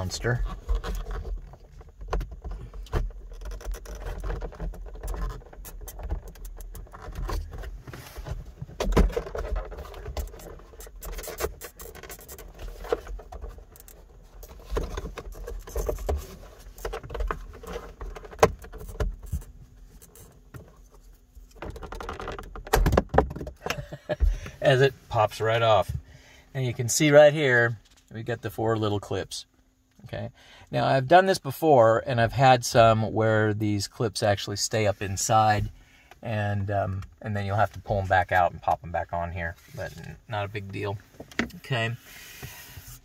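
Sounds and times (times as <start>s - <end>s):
plastic trim clicking and creaking: 0.5s - 7.6s, 21.5s - 23.6s.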